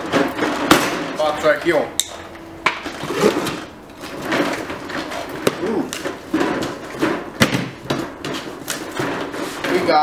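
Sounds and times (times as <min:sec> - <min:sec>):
cardboard scraping and rustling: 0:02.9 - 0:10.0
sharp knocks: 0:05.4 - 0:09.3.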